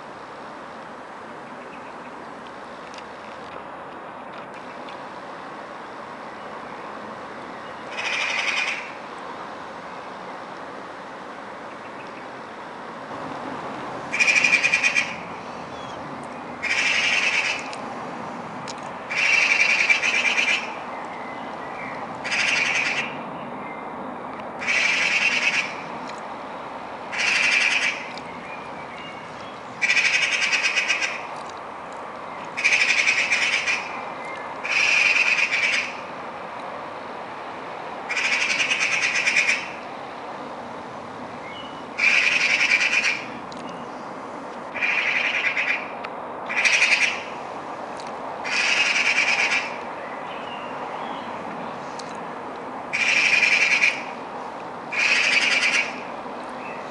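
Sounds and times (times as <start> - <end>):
magpie chattering: 7.9 - 8.9, 16.6 - 17.7, 19.1 - 20.7, 24.6 - 25.8, 27.1 - 28.1, 29.8 - 31.2, 32.6 - 33.9, 34.6 - 36.0, 38.1 - 39.7, 42.0 - 43.2, 44.8 - 45.9, 46.5 - 47.3, 48.5 - 49.8, 53.0 - 54.1, 54.9 - 56.0.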